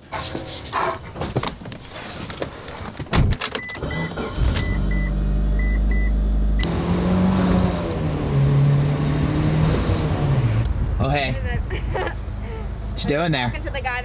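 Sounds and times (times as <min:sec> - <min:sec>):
car engine rumble: 0:00.0 - 0:14.0
road noise inside moving car: 0:03.6 - 0:14.0.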